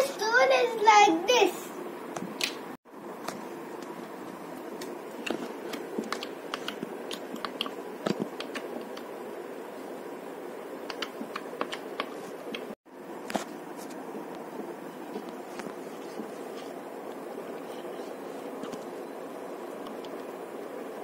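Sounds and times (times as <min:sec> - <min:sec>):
steady background noise: 0:00.0 - 0:21.0.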